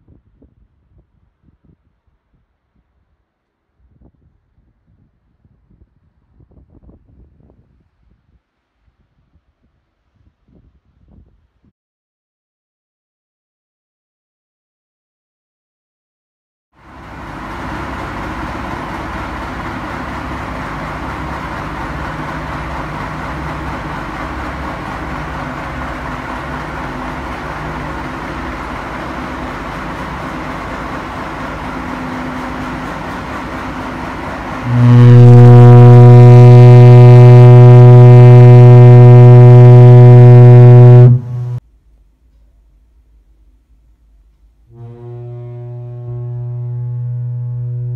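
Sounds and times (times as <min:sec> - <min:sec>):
engines running: 0:16.8 - 0:41.6
foghorn low note: 0:17.0 - 0:41.6, 0:44.7 - 0:47.9.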